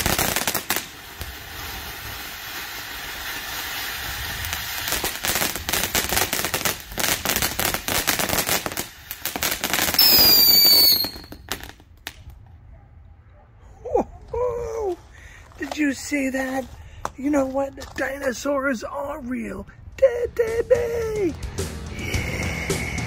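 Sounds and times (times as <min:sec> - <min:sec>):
firework fountain hissing and crackling: 0:00.0 - 0:12.3, 0:14.5 - 0:18.4, 0:21.9 - 0:23.0
firework whistle: 0:09.8 - 0:11.6, 0:21.9 - 0:23.0.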